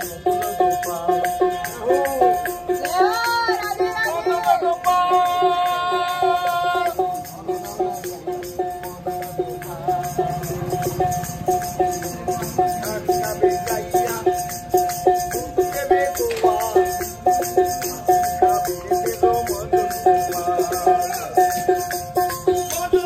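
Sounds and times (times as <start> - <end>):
wooden clappers clicking: 6.8 - 23.0.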